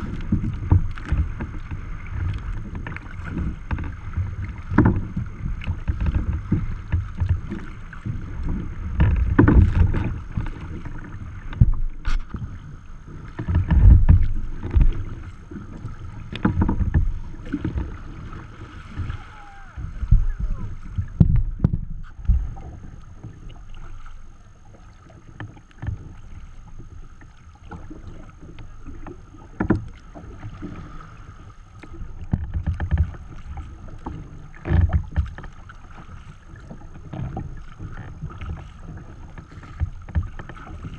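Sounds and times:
water slapping kayak hull: 0:00.0 - 0:40.9
wind buffeting microphone: 0:15.8 - 0:22.7.

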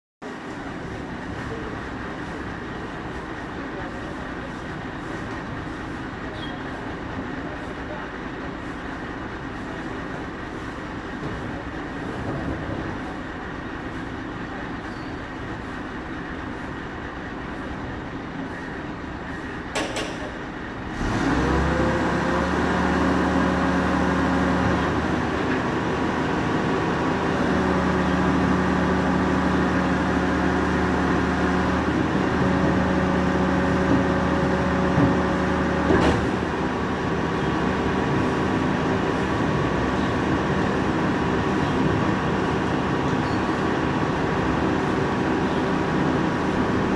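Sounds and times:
garbage truck engine: 0:00.2 - 0:46.9
bins knocking on hopper: 0:33.6 - 0:36.4.

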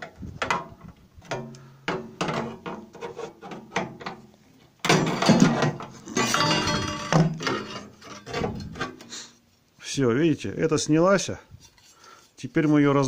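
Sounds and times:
sheet metal scraping and bending: 0:01.3 - 0:04.2, 0:04.9 - 0:09.1.

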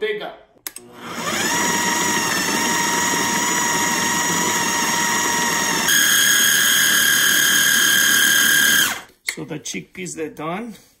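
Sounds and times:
food processor motor running: 0:00.8 - 0:09.1.

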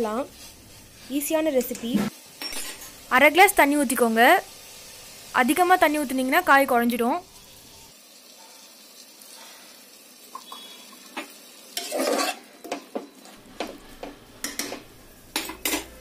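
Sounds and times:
vegetables sizzling in oil: 0:00.0 - 0:16.0
metal ladle scraping a pot: 0:11.8 - 0:12.5.

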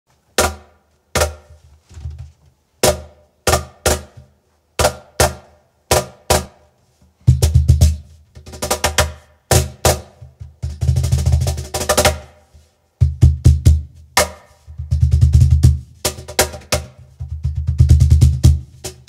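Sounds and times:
fast cajon finger roll: 0:07.4 - 0:12.4, 0:13.0 - 0:19.0.

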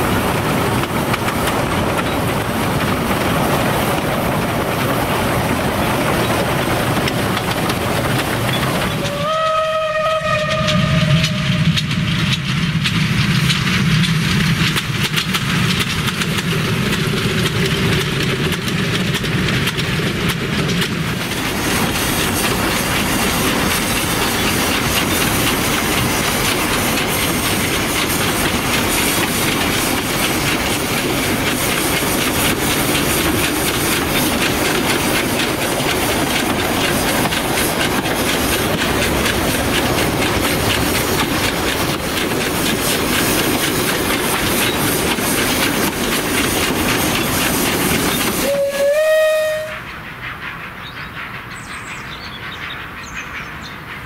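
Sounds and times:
wheels clattering on rails: 0:00.0 - 0:54.0
steam hissing: 0:10.8 - 0:51.5.

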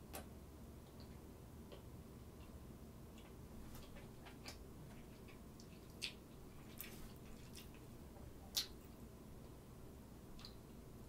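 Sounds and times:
chewing clicks: 0:03.2 - 0:07.8.

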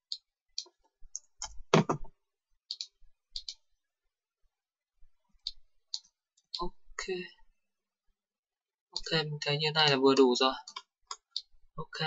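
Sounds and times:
computer mouse clicks: 0:00.0 - 0:03.7, 0:05.3 - 0:06.7, 0:10.1 - 0:11.6.

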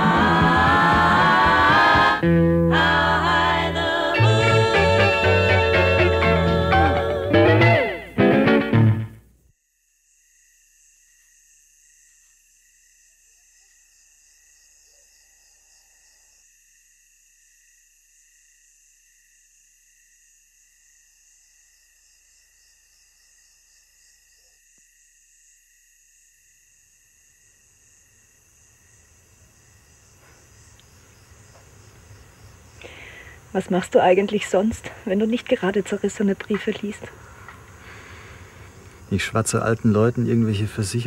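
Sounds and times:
faint crickets chirping: 0:09.2 - 0:41.0.

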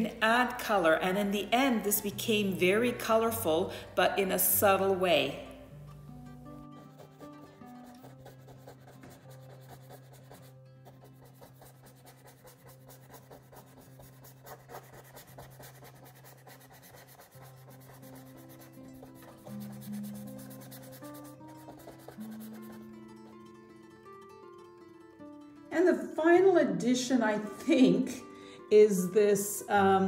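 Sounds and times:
soft background music: 0:00.0 - 0:30.0
paintbrush scratching on canvas: 0:06.6 - 0:23.2.

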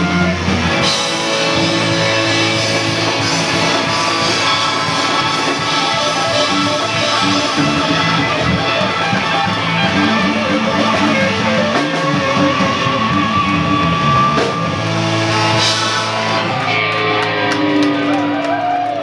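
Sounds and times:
bass guitar: 0:00.0 - 0:19.0
electric guitars: 0:00.0 - 0:19.0
saxophone: 0:05.1 - 0:14.7.

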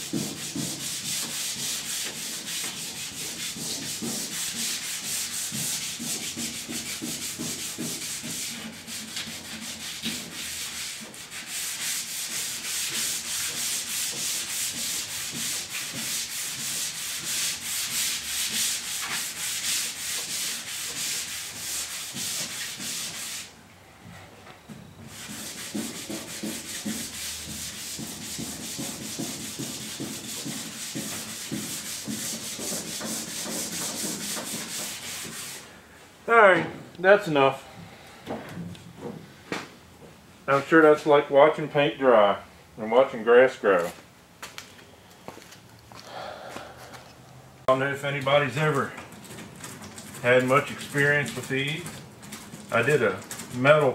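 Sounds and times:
sandpaper rubbing: 0:00.0 - 0:23.5, 0:25.1 - 0:35.6, 0:48.0 - 0:53.9.

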